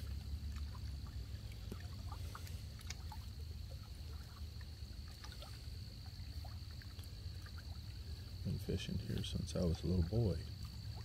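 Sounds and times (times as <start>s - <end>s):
ripples lapping at water's edge: 0.0s - 11.0s.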